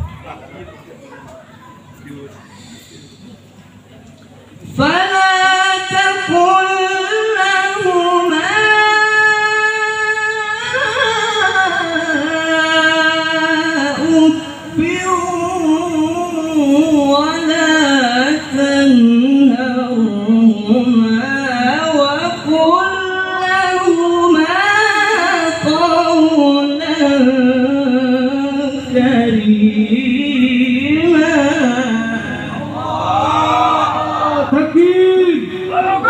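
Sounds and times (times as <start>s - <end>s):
breaths between phrases: 2.4s - 3.4s
man chanting into a microphone: 4.6s - 36.0s.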